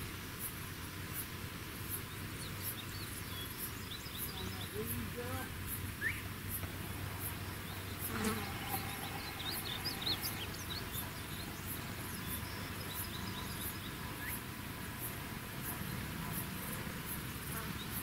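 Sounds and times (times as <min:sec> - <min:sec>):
insects calling in high pulses: 0:00.4 - 0:18.0
quick bird chirps: 0:07.2 - 0:14.4.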